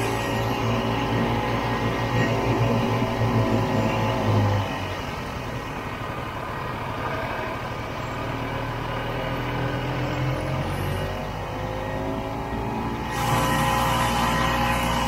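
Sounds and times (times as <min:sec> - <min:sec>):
two-stroke engine running: 0:12.4 - 0:15.0.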